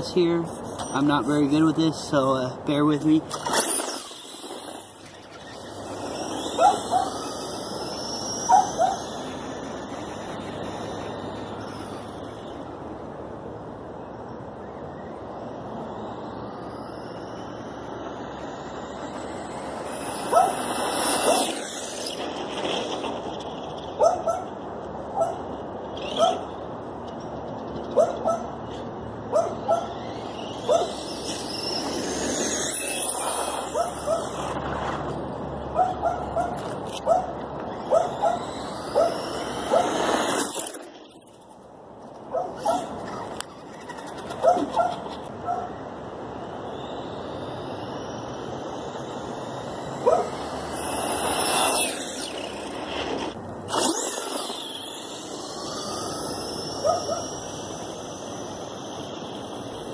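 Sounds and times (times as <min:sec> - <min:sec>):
electric motor whine: 0:02.8 - 0:13.3, 0:15.2 - 0:23.8, 0:29.6 - 0:35.3, 0:36.6 - 0:41.5, 0:46.0 - 0:59.9
dog yipping: 0:06.6 - 0:07.2, 0:08.5 - 0:09.1, 0:20.3 - 0:20.6, 0:24.0 - 0:24.5, 0:25.1 - 0:25.4, 0:26.0 - 0:26.4, 0:27.9 - 0:28.6, 0:29.3 - 0:30.0, 0:30.7 - 0:31.0, 0:33.7 - 0:34.4, 0:35.8 - 0:37.3, 0:37.9 - 0:38.4, 0:39.0 - 0:40.0, 0:42.3 - 0:43.4, 0:44.3 - 0:45.7, 0:50.0 - 0:50.4, 0:56.8 - 0:57.4.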